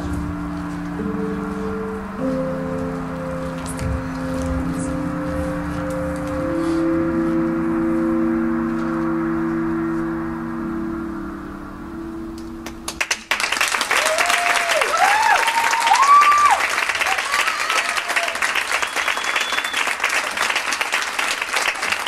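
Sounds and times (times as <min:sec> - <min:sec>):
low gong-like music tone: 0:00.0 - 0:13.6
audience applause: 0:12.9 - 0:22.0
whoops and cheers: 0:13.8 - 0:19.9
high whistle: 0:18.4 - 0:20.2.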